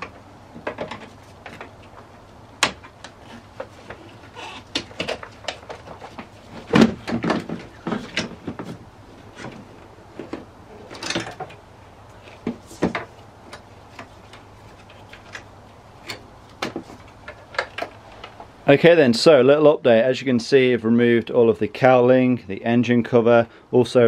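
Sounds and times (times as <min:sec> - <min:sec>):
plastic panels clicking and knocking: 0:04.7 - 0:08.8, 0:12.4 - 0:18.4.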